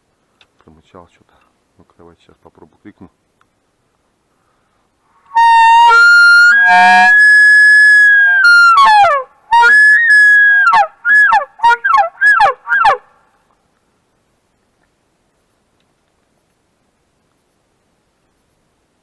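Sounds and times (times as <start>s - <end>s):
game call whistling notes: 5.3s - 13.0s.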